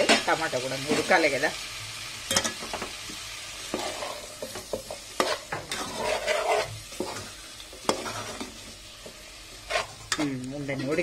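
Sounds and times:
oil sizzling: 0.0 - 11.0
metal spatula scraping pot: 3.6 - 11.0.

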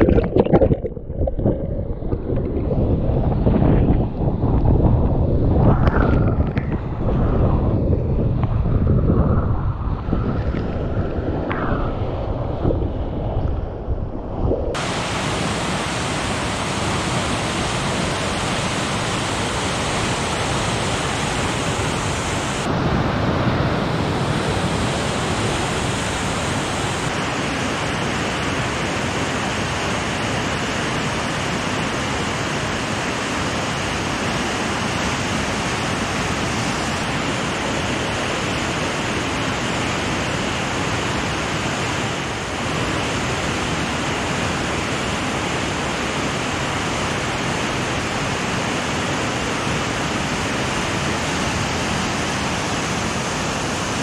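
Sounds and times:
water splashing: 0.0 - 5.0, 9.9 - 22.7
wind buffeting camera: 0.0 - 15.1
rapids rushing: 9.7 - 27.1.

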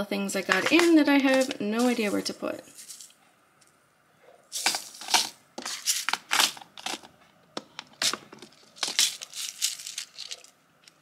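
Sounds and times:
plastic packets crinkling: 0.5 - 3.1, 4.6 - 7.1, 7.8 - 11.0.

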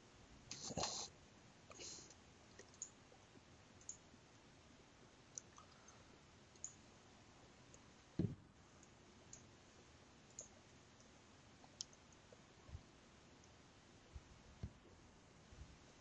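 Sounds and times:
faint hiss: 0.0 - 16.0
small sharp clicks: 3.8 - 4.0, 6.5 - 6.8
low thump: 8.2 - 8.4.

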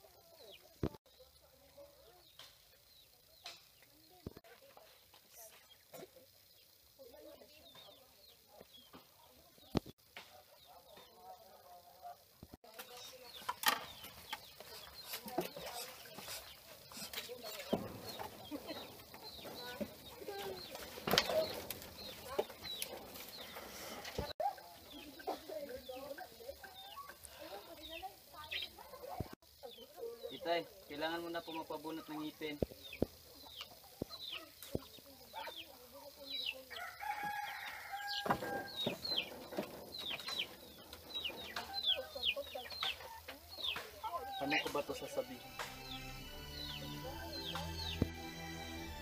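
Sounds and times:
birds chirping: 0.0 - 49.0
chickens clucking: 0.0 - 49.0
rooster crowing: 36.7 - 39.1.

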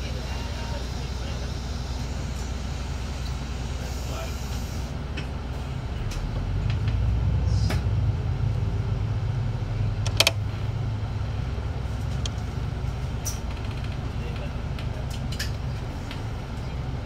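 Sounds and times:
bus engine rumble: 0.0 - 17.0
rattling click: 10.0 - 10.4.

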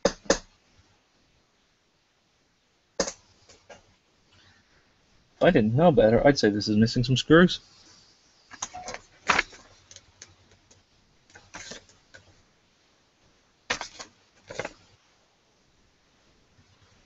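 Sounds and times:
paper rustling: 8.5 - 10.0, 11.3 - 12.3, 13.7 - 15.0.

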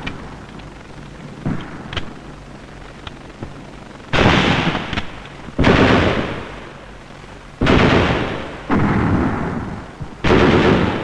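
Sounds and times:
gunshots with long echo: 4.1 - 7.0, 7.6 - 11.0.

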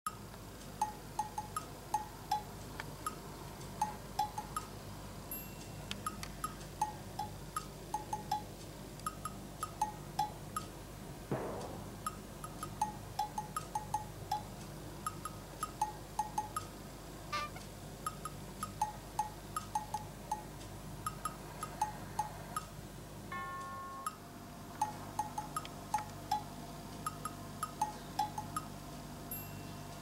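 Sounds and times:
mallet percussion music: 23.3 - 26.5.

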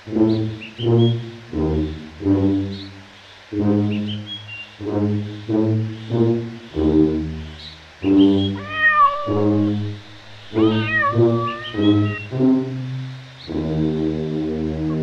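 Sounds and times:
slow low brass music: 0.0 - 15.0
cat meowing: 8.6 - 9.8, 10.4 - 12.3.

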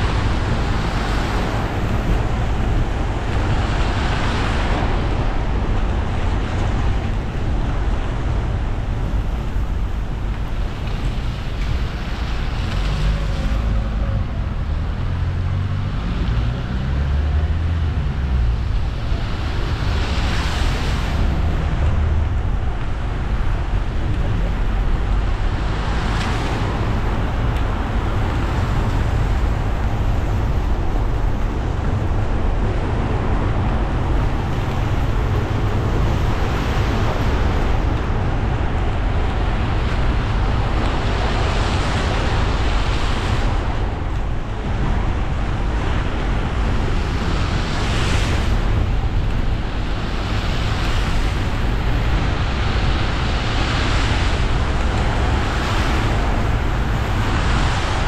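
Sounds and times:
car engine and road rumble: 0.0 - 58.0
tyres hissing on wet road: 0.0 - 58.0.

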